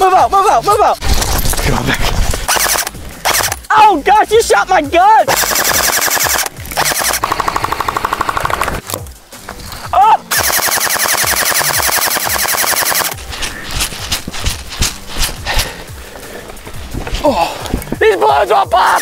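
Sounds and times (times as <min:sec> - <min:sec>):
airsoft rifle full auto bursts: 0:02.5 - 0:03.6, 0:05.3 - 0:08.8, 0:10.3 - 0:13.2.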